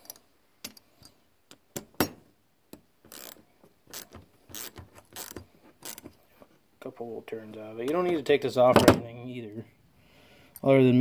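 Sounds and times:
ratchet clicking: 3.1 - 6.1.

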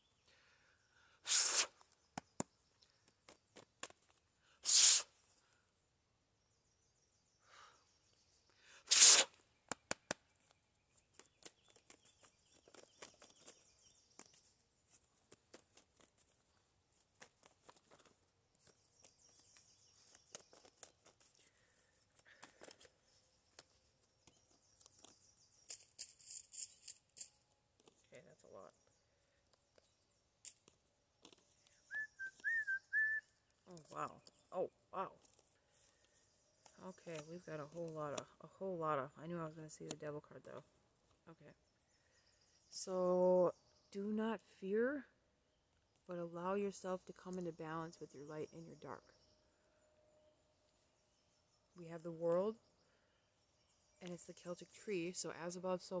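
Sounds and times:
cards clicking and tapping: 2.1 - 4.2, 9.6 - 16.4, 17.0 - 21.6, 22.2 - 26.1, 29.5 - 31.8
cards riffle shuffling: 8.9 - 28.1
cards rustling: 10.3 - 28.1, 29.4 - 31.9.

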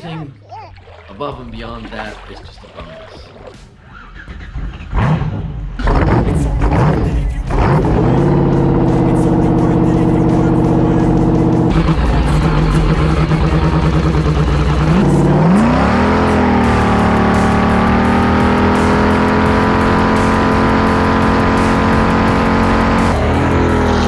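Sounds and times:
jet ski engine running: 6.2 - 24.0.

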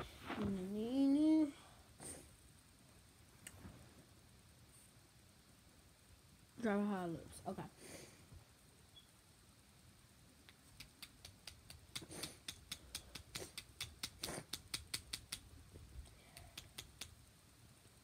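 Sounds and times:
soft rustling: 0.0 - 1.1.

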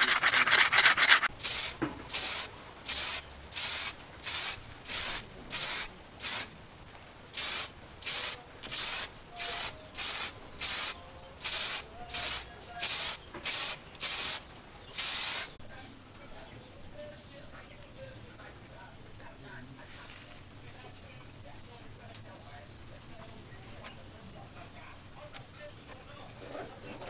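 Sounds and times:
aerosol spray can hissing: 0.0 - 6.5, 7.4 - 14.4, 15.0 - 15.6.

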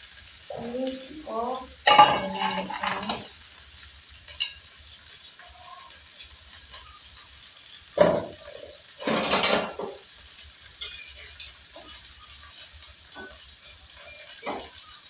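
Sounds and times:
oil sizzling in a wok: 0.0 - 15.0
metal spatula scraping pan: 1.9 - 3.3, 10.7 - 14.7.

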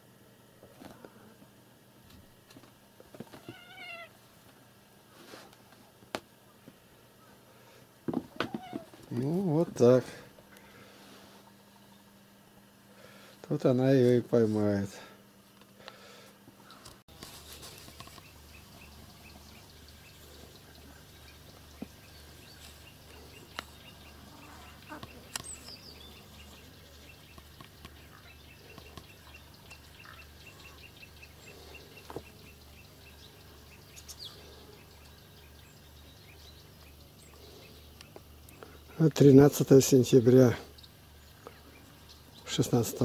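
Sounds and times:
high faint chirping: 17.6 - 43.0.

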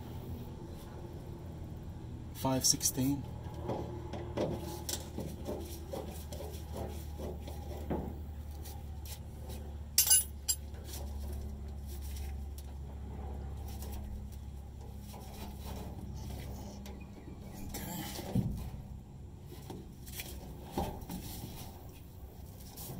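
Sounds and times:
low steady hum: 0.0 - 22.9
sharp metallic clinks: 10.0 - 10.6
hands handling metal fuel lines: 10.0 - 12.8.

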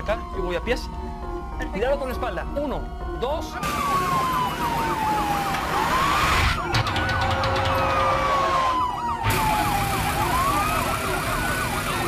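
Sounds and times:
siren fast yelp: 0.0 - 12.0
siren slow wail: 0.0 - 12.0.

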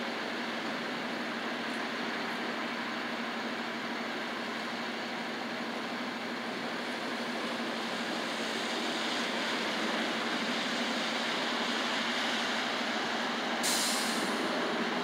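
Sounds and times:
sharp high hiss: 13.6 - 14.4.

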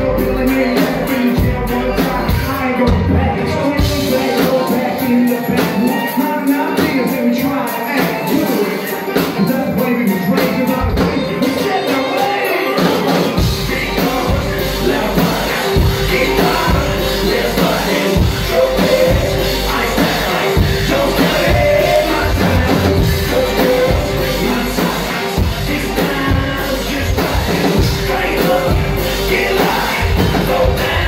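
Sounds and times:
drums: 0.0 - 31.0
rapping: 0.0 - 31.0
deep bass: 13.4 - 31.0.

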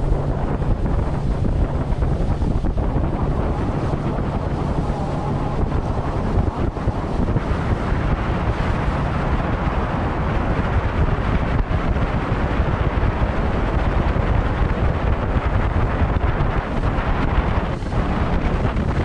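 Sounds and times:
outboard motor running: 0.0 - 19.0
wind buffeting microphone: 0.0 - 19.0.

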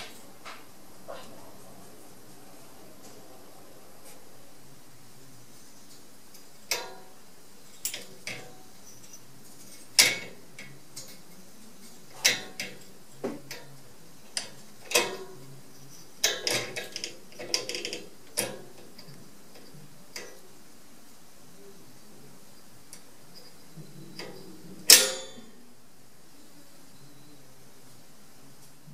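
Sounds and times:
metal latch and cage door rattling: 9.7 - 10.7, 12.1 - 12.9, 14.4 - 15.4, 16.2 - 19.2.

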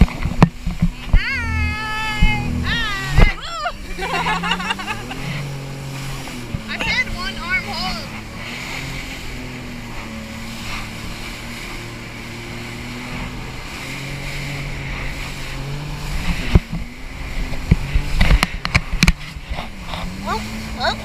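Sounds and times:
jet ski engine droning: 0.0 - 21.0
rushing water: 0.0 - 21.0
wind: 0.0 - 21.0
loud thumps and splashes: 16.1 - 20.6.

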